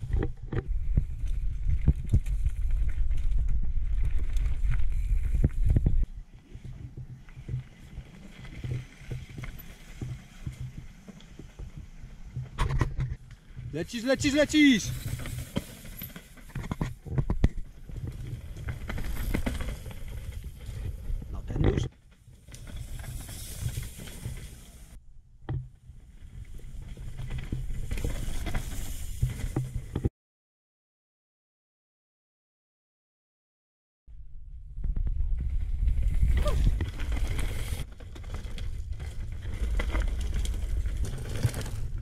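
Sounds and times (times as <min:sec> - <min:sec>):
mountain bike rattling and knocking: 0:00.0 - 0:24.6, 0:25.5 - 0:30.1, 0:35.6 - 0:42.0
tyres rumbling over rocks: 0:00.0 - 0:24.6, 0:35.8 - 0:42.0.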